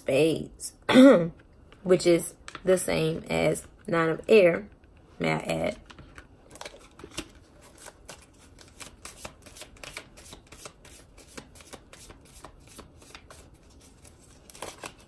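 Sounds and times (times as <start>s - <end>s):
playing cards being shuffled: 6.5s - 15.0s.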